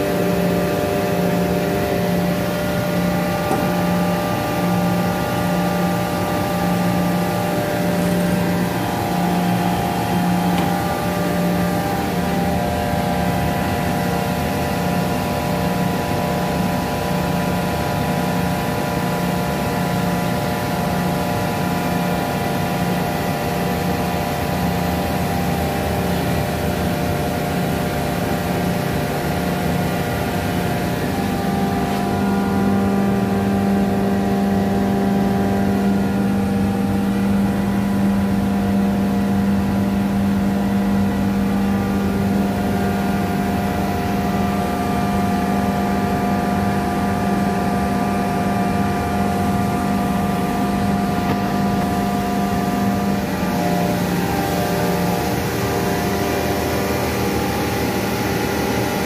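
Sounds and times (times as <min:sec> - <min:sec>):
air compressor motor hum: 0:00.0 - 0:59.0.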